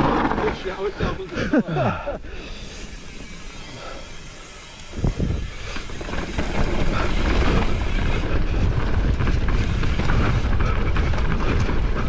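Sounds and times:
bike clattering over bumps: 0:00.0 - 0:01.6, 0:04.3 - 0:12.0
tyres rolling over dirt and rock: 0:00.0 - 0:01.6, 0:05.1 - 0:12.0
wind rushing over microphone: 0:04.9 - 0:12.0.

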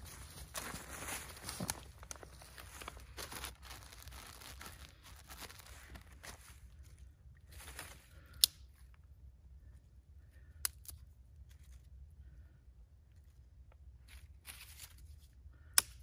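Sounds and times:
soft rustling of plastic bag: 0:00.0 - 0:08.3.

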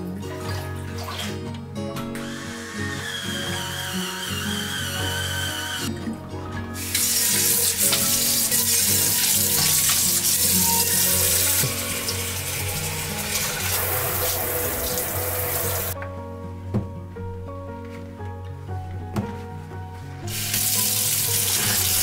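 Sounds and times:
water splashing into steel sink: 0:06.9 - 0:16.0, 0:20.3 - 0:22.0.

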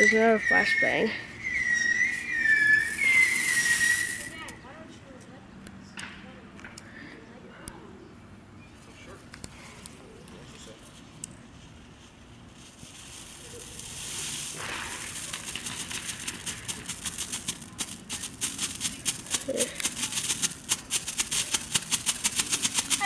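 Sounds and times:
firework fountain hissing: 0:00.0 - 0:04.5, 0:12.4 - 0:23.0
firework crackling pops: 0:02.2 - 0:04.6, 0:12.6 - 0:23.0.

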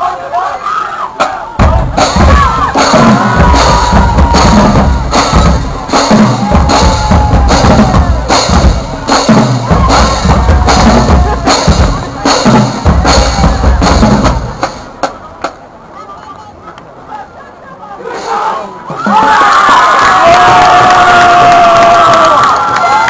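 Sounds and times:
marching drumline: 0:01.2 - 0:15.7
heavy bass drums: 0:01.5 - 0:15.4.

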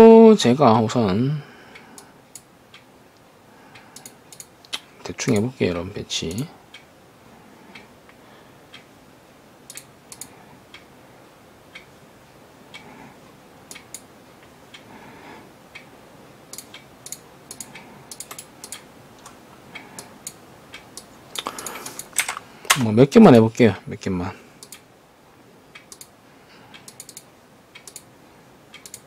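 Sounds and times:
computer mouse clicking: 0:03.9 - 0:05.4, 0:09.7 - 0:10.3, 0:13.7 - 0:14.1, 0:16.5 - 0:22.9, 0:24.6 - 0:24.8, 0:25.8 - 0:26.1, 0:26.8 - 0:28.1, 0:28.8 - 0:29.0.

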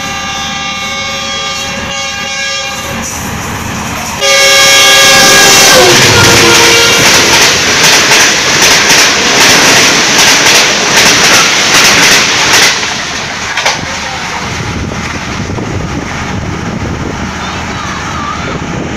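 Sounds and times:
rush of air from train: 0:00.0 - 0:18.9
train wheels clattering over rail joints: 0:05.8 - 0:15.6.

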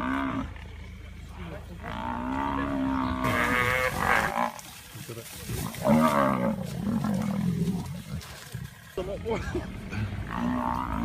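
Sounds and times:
buffalo bellowing in distress: 0:01.8 - 0:04.7, 0:05.6 - 0:08.3, 0:09.8 - 0:11.0.

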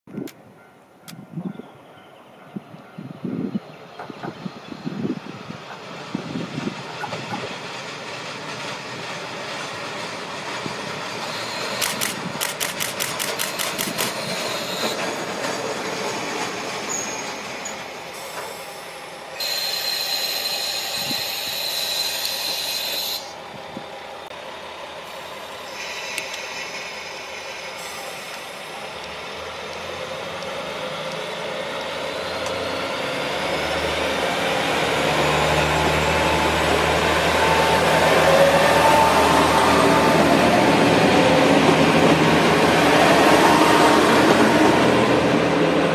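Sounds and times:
diesel train passing: 0:00.4 - 0:45.9
steady high tone: 0:18.8 - 0:24.3.

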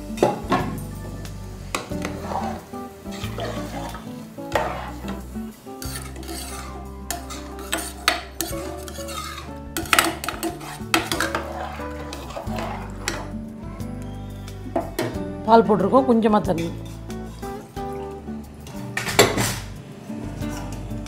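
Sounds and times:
metal ladle scraping a pot: 0:01.8 - 0:05.2, 0:05.8 - 0:13.4.

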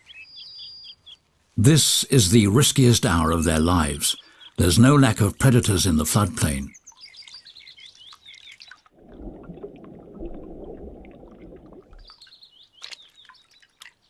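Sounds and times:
small birds chirping: 0:00.0 - 0:01.2, 0:03.2 - 0:05.8, 0:06.6 - 0:08.9, 0:11.4 - 0:14.0
muffled underwater rush: 0:08.9 - 0:12.2.

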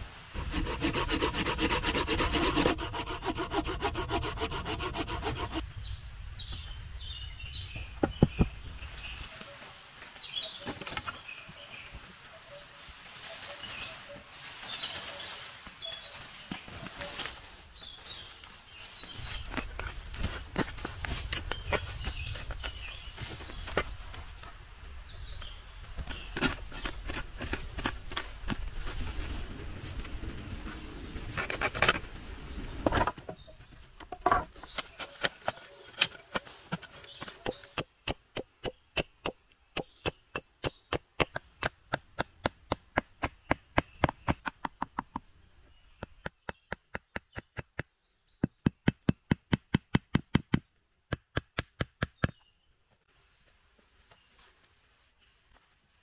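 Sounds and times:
chopping wood with hand tool: 0:34.2 - 0:45.2, 0:46.0 - 0:52.4.

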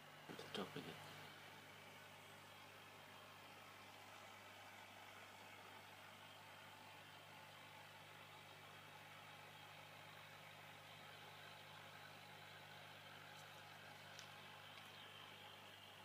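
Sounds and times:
aquarium pump humming: 0:00.0 - 0:16.0.

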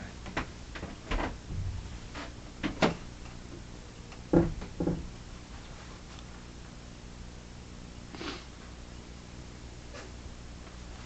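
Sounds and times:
short knocks and bumps: 0:00.3 - 0:03.0, 0:04.3 - 0:05.1.

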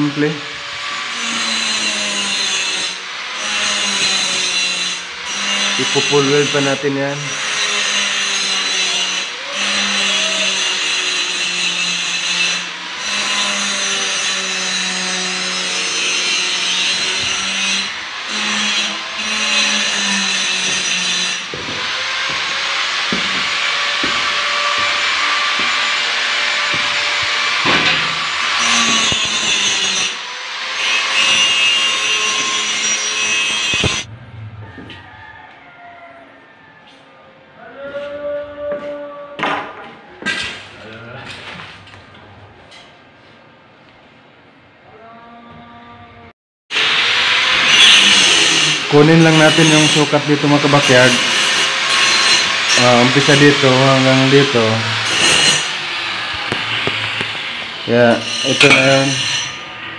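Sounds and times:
angle grinder cutting metal: 0:00.0 - 0:34.1, 0:46.7 - 0:59.9.

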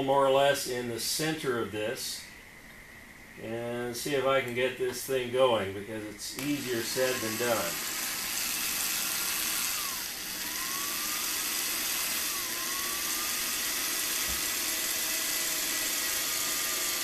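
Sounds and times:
electric drill boring: 0:06.4 - 0:17.0.

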